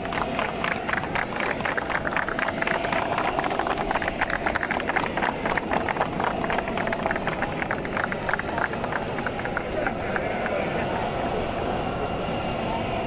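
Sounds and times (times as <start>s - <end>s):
people clapping: 0.0s - 11.2s
steady engine whine: 0.0s - 13.0s.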